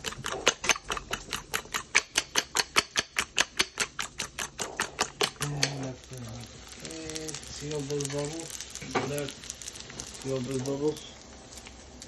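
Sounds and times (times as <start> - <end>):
fork beating eggs in bowl: 0.0 - 6.0.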